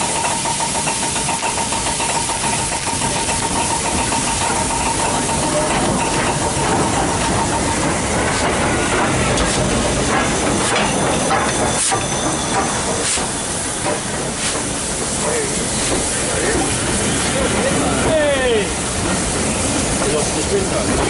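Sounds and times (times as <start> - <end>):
steam hissing: 0.0 - 21.0
sharp clicks and knocks: 0.1 - 15.2.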